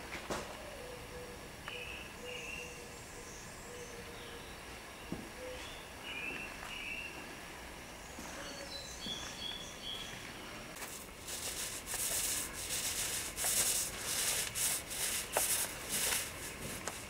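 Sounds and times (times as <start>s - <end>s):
wood being sanded: 10.8s - 17.0s.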